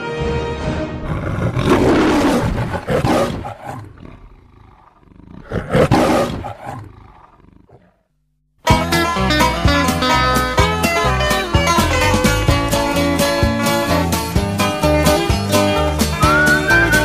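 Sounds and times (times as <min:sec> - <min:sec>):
lion roar: 0:00.7 - 0:08.1.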